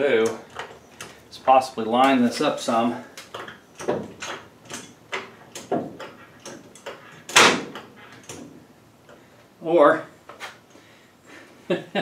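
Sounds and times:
floor jack clunking: 0:03.2 - 0:08.6.

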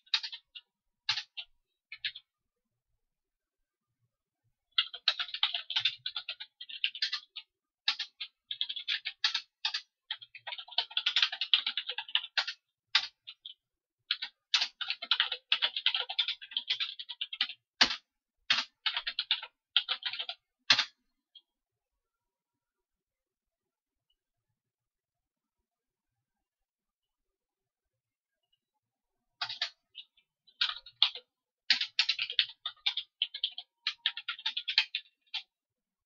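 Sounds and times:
typing on computer keyboard: 0:00.0 - 0:02.3, 0:04.8 - 0:21.0, 0:29.4 - 0:35.6.

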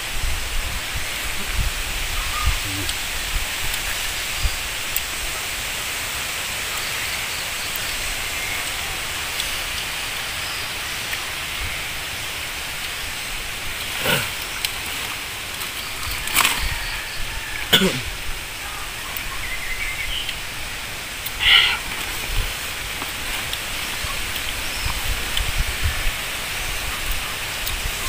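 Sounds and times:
outdoor background hiss: 0:00.0 - 0:28.0.

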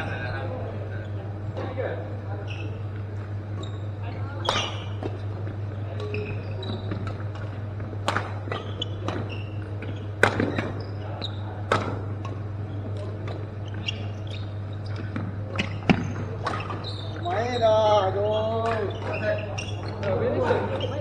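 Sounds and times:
steady low hum: 0:00.0 - 0:21.0
shoe squeaks on court floor: 0:02.4 - 0:07.5, 0:08.4 - 0:21.0
rackets hitting shuttlecock: 0:04.4 - 0:05.2, 0:06.0 - 0:10.8, 0:11.5 - 0:14.1, 0:14.9 - 0:17.2.

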